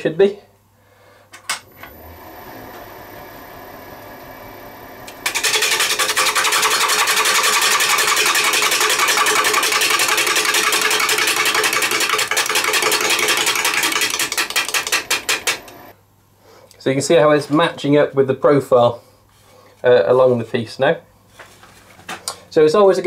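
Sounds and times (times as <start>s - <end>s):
lathe hum: 1.7s - 16.0s
gouge clattering on spinning wood: 5.2s - 15.7s.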